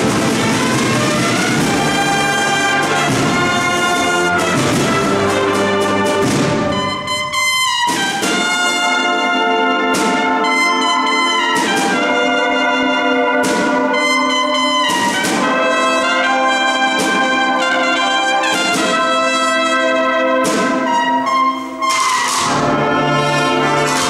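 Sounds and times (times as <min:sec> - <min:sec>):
sharp percussion accents: 0:00.0 - 0:08.9, 0:20.4 - 0:24.0
brass chords: 0:00.0 - 0:24.0.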